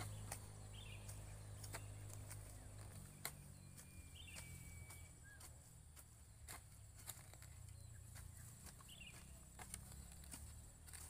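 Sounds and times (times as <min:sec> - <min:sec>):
faint bird chirps: 0:00.0 - 0:10.8
hoes chopping soil: 0:00.0 - 0:11.0
low outdoor rumble: 0:00.0 - 0:11.0.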